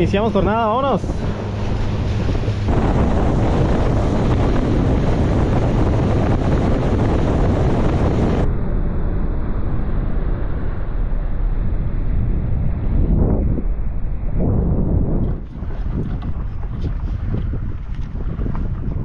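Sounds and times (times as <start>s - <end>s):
boat motor humming: 0.0s - 8.5s, 15.3s - 19.0s
water rushing past hull: 0.0s - 8.5s, 15.2s - 19.0s
wind buffeting microphone: 0.0s - 19.0s.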